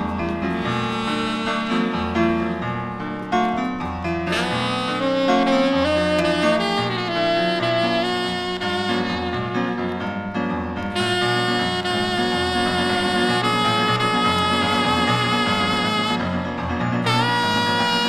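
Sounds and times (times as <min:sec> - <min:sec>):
saxophone playing long notes: 0:00.6 - 0:02.5, 0:04.3 - 0:10.0, 0:10.9 - 0:18.0.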